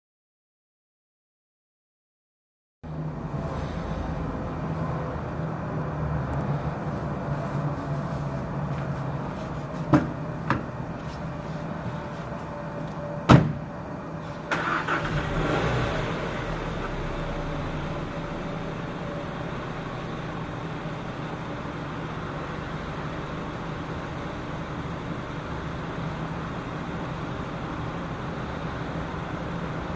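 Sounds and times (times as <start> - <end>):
car engine starting and idling: 2.9 - 29.9
loud thump: 13.3 - 13.7.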